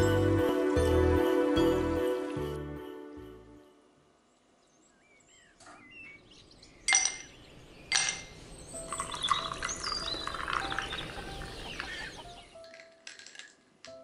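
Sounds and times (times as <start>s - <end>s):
faint birdsong: 4.1s - 12.6s
ice cubes clinking into glass: 7.9s - 10.9s, 12.6s - 13.6s
fizzy liquid pouring: 8.9s - 11.0s.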